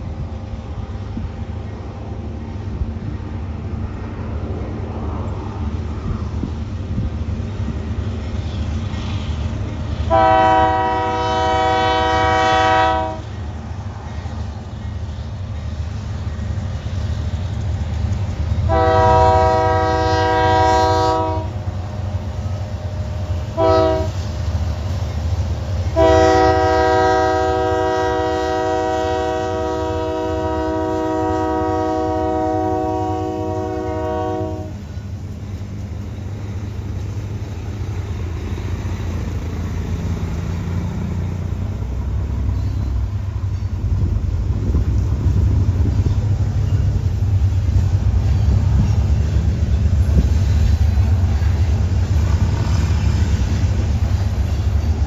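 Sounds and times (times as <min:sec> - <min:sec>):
train rumbling past: 0:00.0 - 0:55.0
locomotive air horn blasts: 0:10.0 - 0:13.4, 0:18.6 - 0:21.6, 0:23.5 - 0:24.3, 0:25.8 - 0:35.0.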